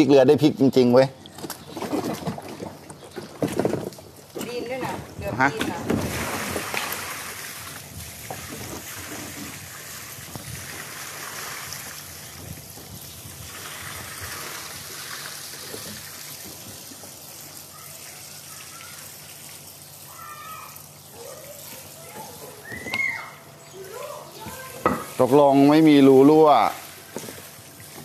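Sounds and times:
tap water trickling into hull: 0:07.6 - 0:19.9.

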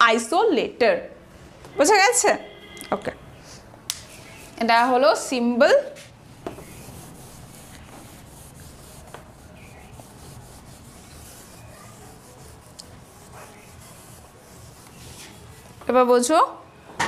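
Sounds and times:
cloth rubbing on whiteboard: 0:04.0 - 0:04.9, 0:05.9 - 0:16.2.

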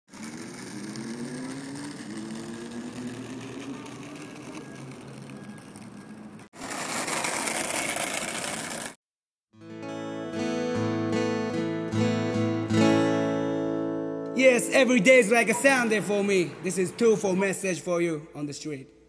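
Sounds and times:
engine-like hum: 0:00.1 - 0:08.9
skateboard wheels rolling: 0:00.1 - 0:09.0.

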